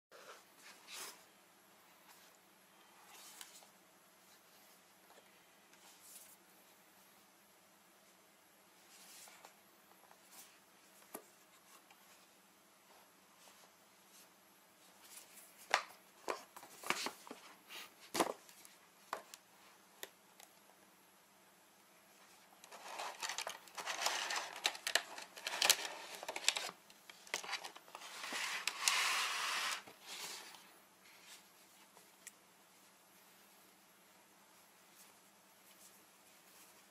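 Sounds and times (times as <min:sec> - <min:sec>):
packaging rustling and crinkling: 0:22.6 - 0:30.4.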